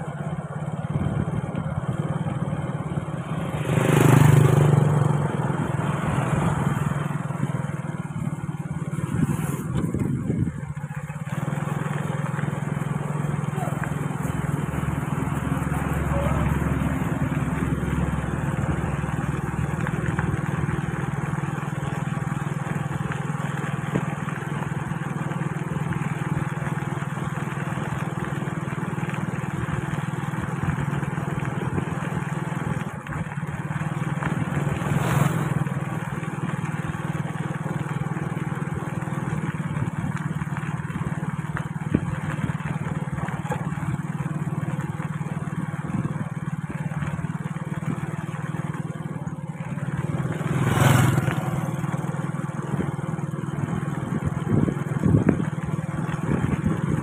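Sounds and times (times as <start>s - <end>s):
motorbike engine running: 0.0s - 57.0s
tyres on dirt road: 0.0s - 57.0s
wind noise: 9.0s - 10.9s, 54.0s - 57.0s.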